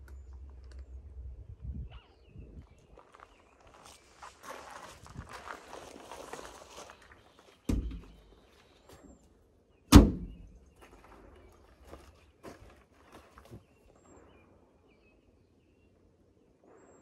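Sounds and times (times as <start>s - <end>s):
metal door thunk: 7.7s - 8.2s, 9.9s - 10.4s
metal door slamming: 9.9s - 10.4s.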